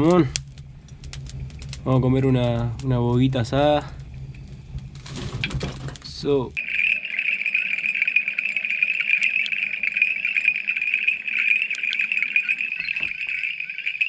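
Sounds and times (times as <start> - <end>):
frogs and insects calling: 6.6 - 14.0.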